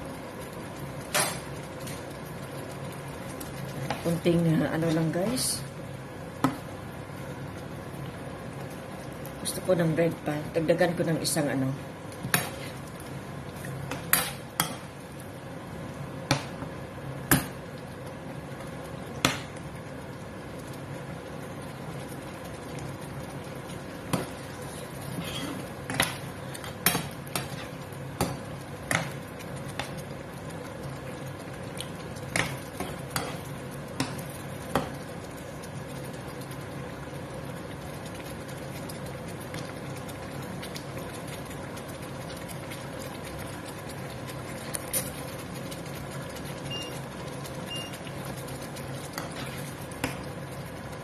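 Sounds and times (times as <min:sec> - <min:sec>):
steady background hum: 0:00.0 - 0:51.0
metal spoon stirring in a pan: 0:49.0 - 0:50.2.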